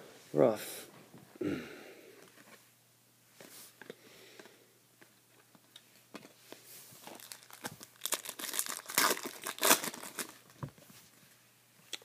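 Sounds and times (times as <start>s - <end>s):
foil wrapper crinkling and tearing: 7.0s - 10.5s.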